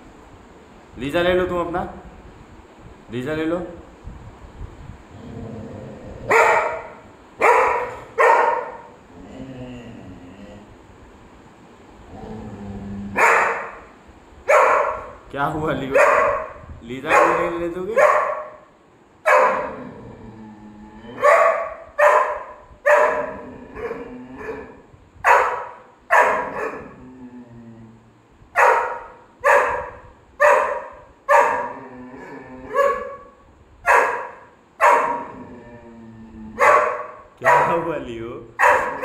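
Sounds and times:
dog barking: 6.3s - 9.0s, 13.2s - 13.9s, 14.5s - 15.2s, 15.9s - 18.7s, 19.3s - 19.8s, 21.2s - 26.9s, 28.6s - 31.8s, 32.7s - 35.3s, 36.6s - 37.9s, 38.6s - 39.0s.

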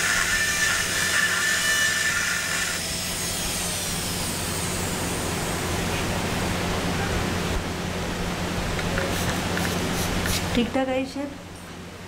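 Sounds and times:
dental drill whining: 0.0s - 5.7s.

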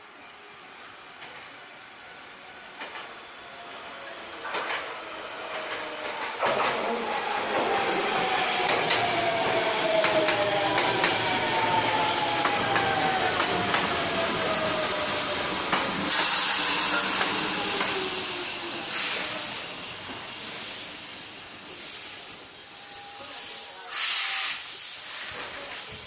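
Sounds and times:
train brake whine: 5.5s - 26.0s
air hiss: 7.1s - 26.0s.

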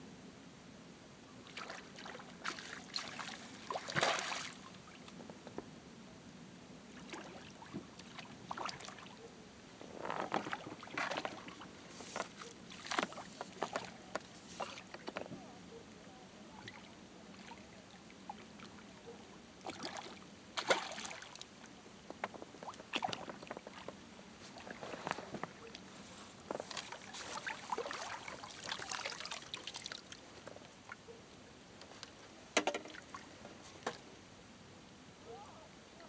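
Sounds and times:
water splashing and sloshing: 1.4s - 5.2s, 6.9s - 9.3s, 10.0s - 15.3s, 16.5s - 31.2s, 31.9s - 34.1s.

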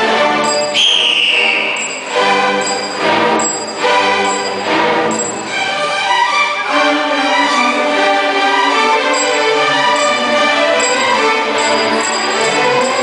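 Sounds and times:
string orchestra playing: 0.0s - 13.0s.

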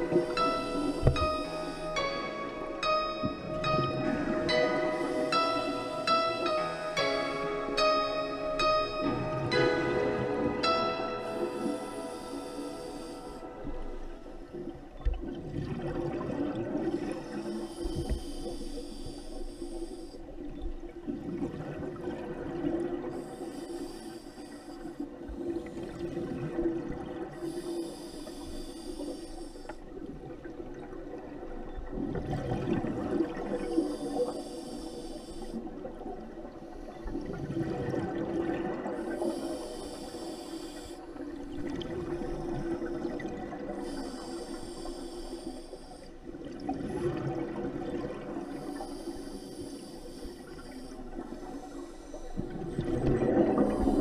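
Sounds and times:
regulator hissing inhale: 0.0s - 2.1s, 4.7s - 7.1s, 11.1s - 14.4s, 16.9s - 20.4s, 23.2s - 26.0s, 27.3s - 29.9s, 33.4s - 35.9s, 38.8s - 41.4s, 42.2s - 46.4s, 48.4s - 54.0s
bubbling gurgling exhale: 51.1s - 54.0s.

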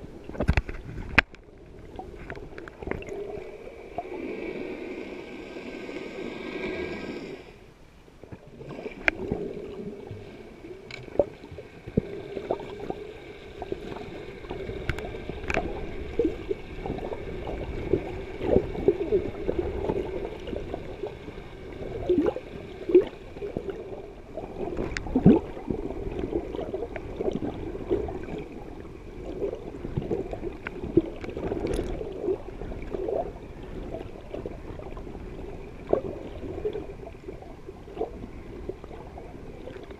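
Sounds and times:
muffled underwater sloshing: 0.0s - 39.9s
underwater clicks and pops: 0.3s - 1.5s, 14.8s - 15.7s.

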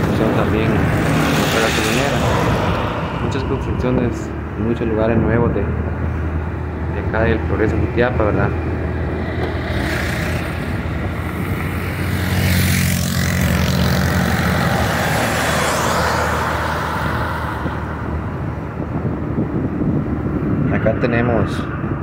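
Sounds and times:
motorcycle passing: 0.0s - 20.6s
road and wind noise: 0.0s - 22.0s.

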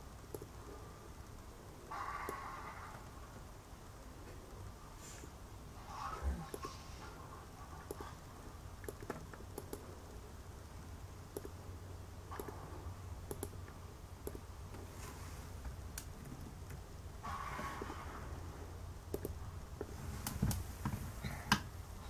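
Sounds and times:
low steady hum: 0.0s - 22.0s
computer mouse clicks: 0.3s - 0.6s, 2.0s - 2.5s, 7.7s - 8.2s, 8.8s - 9.9s, 11.3s - 11.6s, 12.3s - 12.6s, 13.3s - 14.8s, 19.1s - 20.4s
laptop keystrokes: 13.3s - 14.4s.

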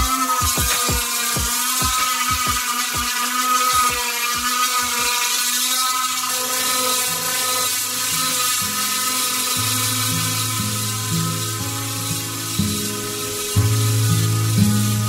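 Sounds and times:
drum beat music: 0.0s - 4.5s
orbital sander motor whine: 0.0s - 15.0s.

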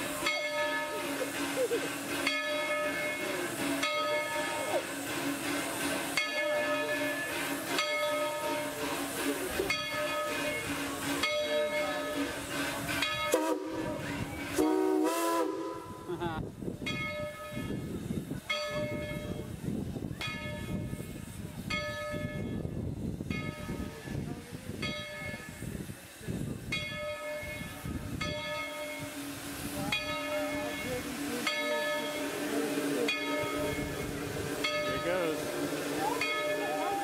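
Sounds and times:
locomotive bell ringing: 0.0s - 14.6s, 16.9s - 19.5s, 23.3s - 24.0s, 24.8s - 25.6s, 26.7s - 37.0s
hissing chuffing steam exhaust: 0.0s - 37.0s
loud steam whistle: 10.3s - 16.2s, 32.1s - 37.0s.

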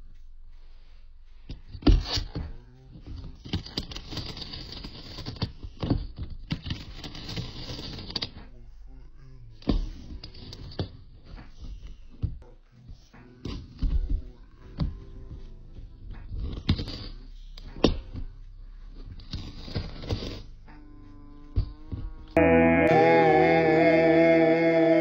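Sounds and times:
cat gnawing and crunching: 3.2s - 8.4s, 16.3s - 17.2s.

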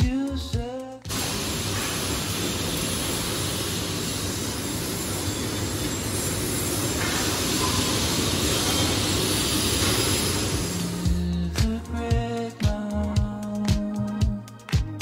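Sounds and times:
factory machinery din: 1.1s - 11.6s.

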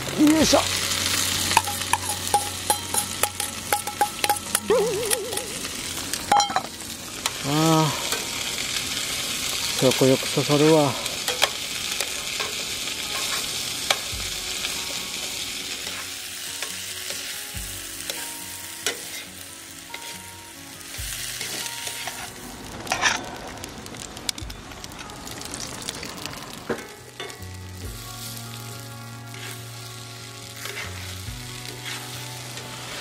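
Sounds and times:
onions sizzling in frying pan: 0.0s - 33.0s
metal tongs scraping pan: 1.1s - 5.7s, 11.2s - 14.1s, 18.8s - 19.3s, 21.4s - 22.3s, 29.3s - 29.7s, 30.6s - 32.8s.

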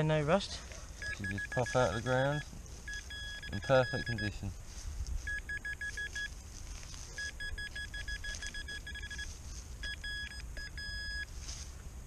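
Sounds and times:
metal detector beeping: 1.0s - 4.5s, 5.2s - 6.4s, 7.2s - 11.4s.

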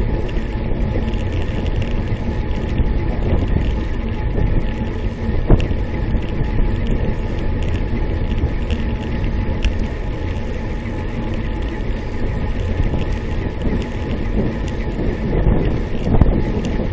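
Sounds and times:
road rumble: 0.0s - 16.9s
wind on microphone: 0.0s - 16.9s.

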